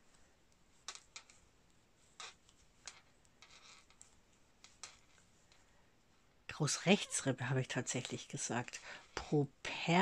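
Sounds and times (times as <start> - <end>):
yarn rubbing on needle: 0.0 - 5.7.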